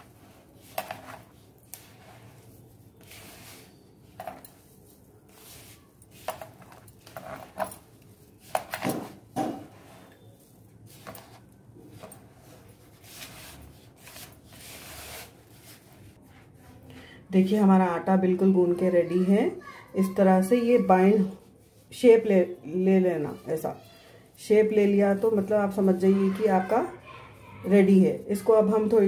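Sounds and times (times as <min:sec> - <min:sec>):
hand kneading dough: 0:00.0 - 0:17.8
light knocks and clinks: 0:04.1 - 0:04.7.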